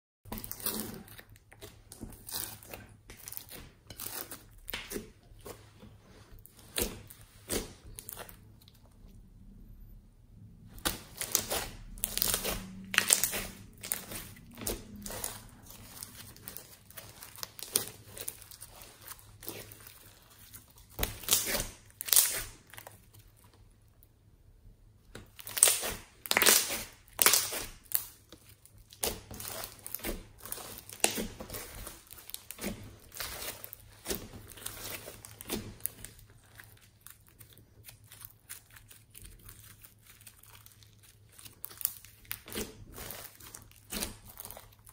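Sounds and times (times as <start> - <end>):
slime crackling and snapping: 10.7 - 23.4, 25.1 - 44.9.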